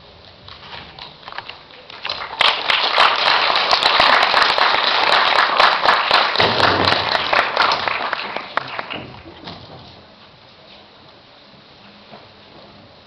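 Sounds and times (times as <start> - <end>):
audience applause: 1.9 - 9.3.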